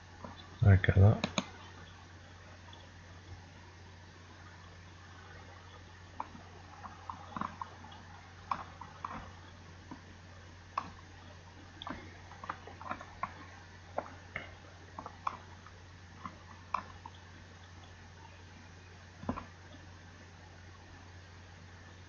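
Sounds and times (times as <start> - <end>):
steady low hum: 0.0 - 22.0
small irregular clicks: 0.2 - 0.6, 1.2 - 2.0, 5.6 - 10.1, 10.7 - 18.3, 19.2 - 19.9.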